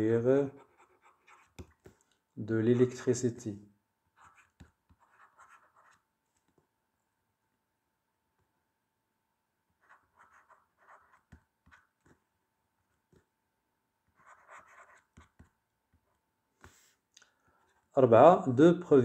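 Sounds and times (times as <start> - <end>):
pen scratching on paper: 0.4 - 1.9, 4.2 - 6.0, 9.8 - 12.1, 14.1 - 16.0.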